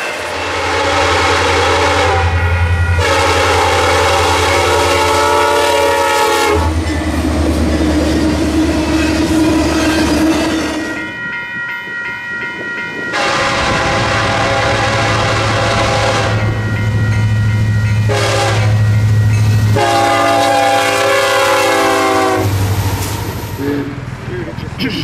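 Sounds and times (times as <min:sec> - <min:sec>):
locomotive air horn: 0:00.0 - 0:06.9, 0:13.1 - 0:16.6, 0:18.1 - 0:18.8, 0:19.7 - 0:22.6, 0:23.6 - 0:24.0
freight train passing: 0:00.0 - 0:25.0.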